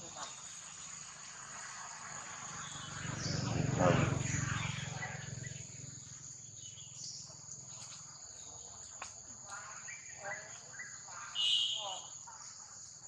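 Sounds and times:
high-pitched drone of insects: 0.0 - 13.0
low hum: 2.6 - 7.3.

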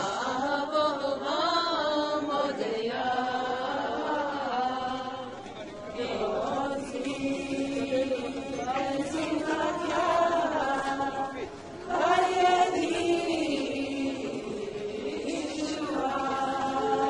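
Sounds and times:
women singing a prayer chant: 0.0 - 17.0.

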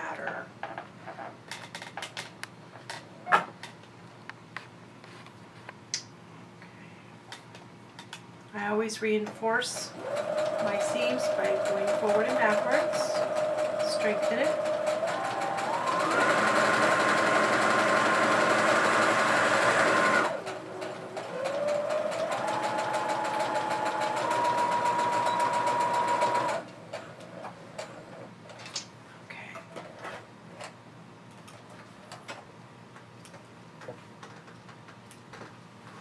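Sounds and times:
sewing machine motor whine: 9.8 - 26.7.

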